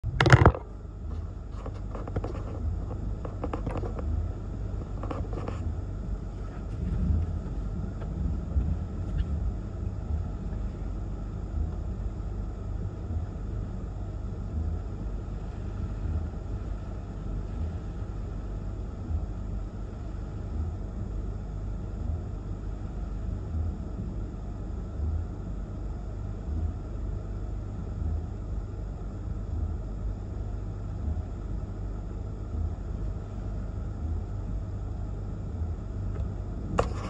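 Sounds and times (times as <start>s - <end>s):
gusty storm wind: 2.4s - 20.0s.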